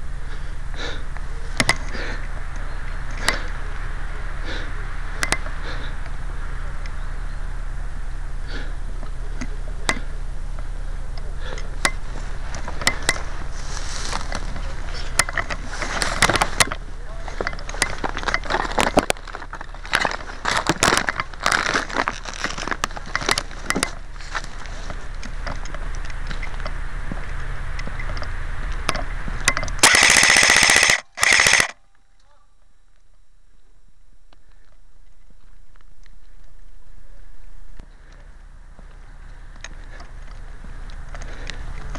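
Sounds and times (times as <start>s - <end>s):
steady low hum: 0.0s - 41.9s
brush crackling and rustling: 12.0s - 28.1s
sharp clicks: 28.8s - 31.8s.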